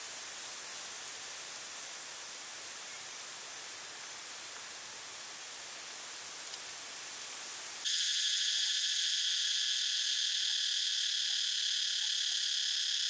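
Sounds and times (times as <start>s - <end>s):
steady hiss: 0.0s - 13.0s
insect chorus buzzing: 7.7s - 13.0s.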